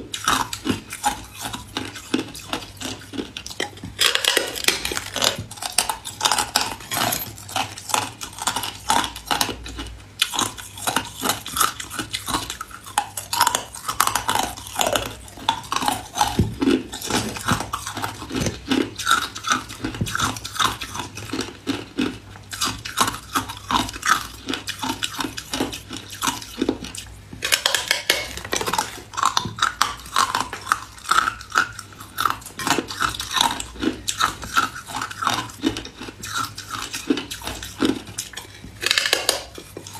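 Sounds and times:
teeth crunching ice: 0:00.0 - 0:39.9.

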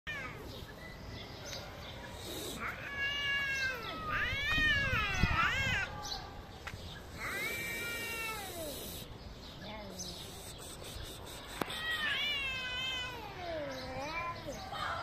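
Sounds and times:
cat yowling: 0:02.3 - 0:06.2, 0:07.2 - 0:09.1, 0:11.5 - 0:14.6.

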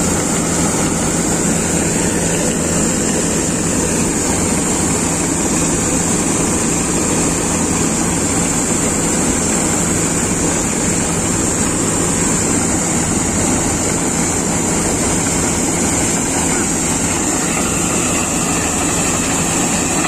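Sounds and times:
combine harvester engine drone: 0:00.0 - 0:20.0
grain pouring from auger: 0:00.0 - 0:20.0
steady high hiss: 0:10.1 - 0:20.0.

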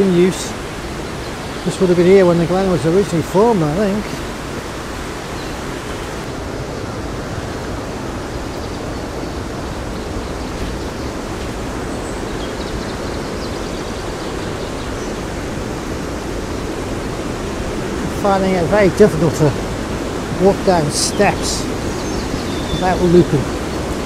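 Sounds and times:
river water rushing over rocks: 0:00.0 - 0:24.0.

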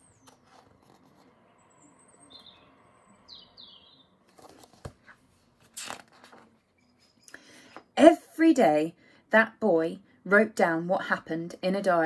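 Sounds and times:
book rustling and knocking: 0:00.0 - 0:01.4, 0:04.3 - 0:06.6
small bird chirps: 0:00.0 - 0:04.2.

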